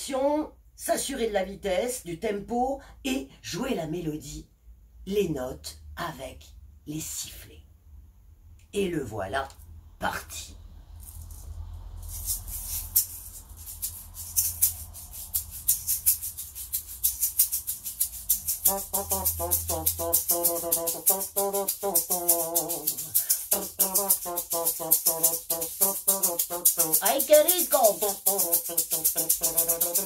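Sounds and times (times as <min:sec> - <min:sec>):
shaker rhythm: 0:10.9 - 0:30.0
pitched melody: 0:17.2 - 0:30.0.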